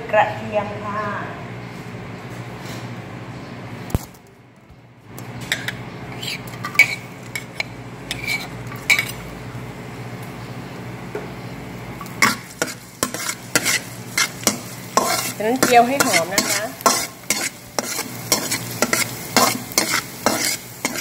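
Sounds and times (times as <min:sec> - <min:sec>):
metal spatula scraping wok: 0:05.4 - 0:09.3, 0:12.1 - 0:21.0
spoon knocking and scraping bowl: 0:05.5 - 0:09.2.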